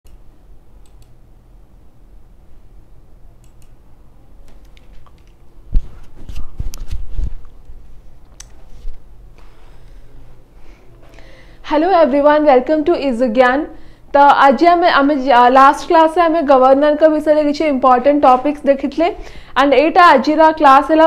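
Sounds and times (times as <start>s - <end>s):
low room hum: 0.1s - 21.0s
faint clicks: 0.8s - 1.2s.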